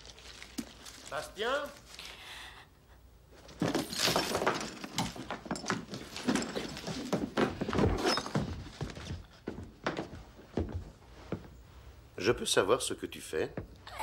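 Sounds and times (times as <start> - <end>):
hard objects clattering and banging: 3.4 - 10.7.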